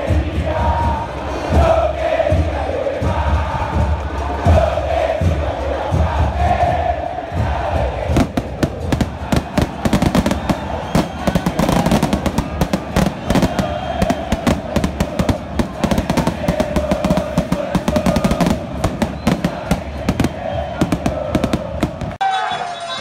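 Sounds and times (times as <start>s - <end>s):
crowd chanting: 0.0s - 23.0s
crowd singing: 0.0s - 23.0s
firecrackers banging: 8.1s - 22.2s.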